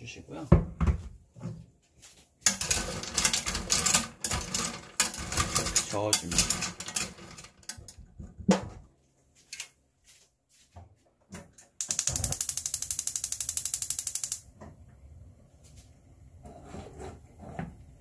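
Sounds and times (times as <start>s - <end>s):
pot clanking: 2.4s - 7.8s.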